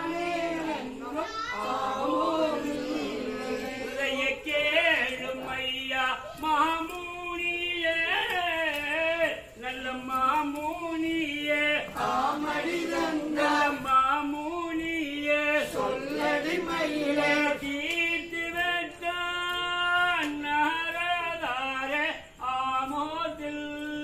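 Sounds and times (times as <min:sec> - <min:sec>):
group singing folk song: 0:00.0 - 0:24.0
hand claps: 0:06.4 - 0:14.5, 0:15.2 - 0:21.2.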